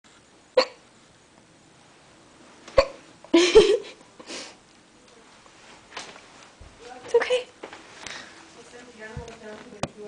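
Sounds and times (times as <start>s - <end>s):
person hiccuping: 0.6s - 0.8s, 2.7s - 3.8s.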